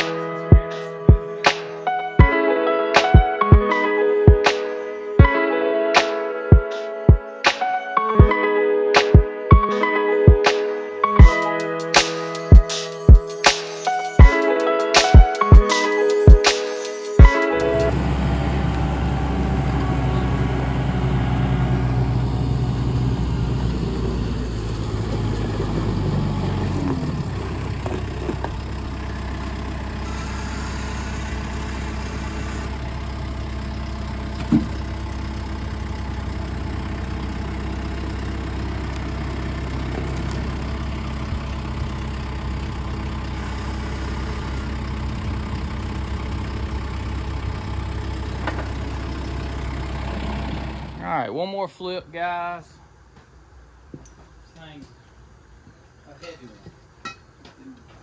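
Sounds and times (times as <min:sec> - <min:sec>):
tractor diesel engine idling: 0:17.2 - 0:52.0.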